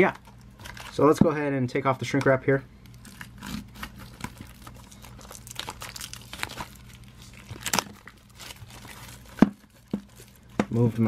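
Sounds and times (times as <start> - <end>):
plastic film crinkling: 0.0 - 1.1, 2.9 - 11.0
plastic wrap ripping: 2.9 - 11.0.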